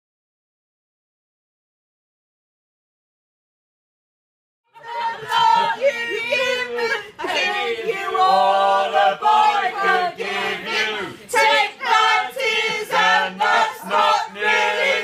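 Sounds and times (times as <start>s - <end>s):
women singing together: 4.8s - 15.0s.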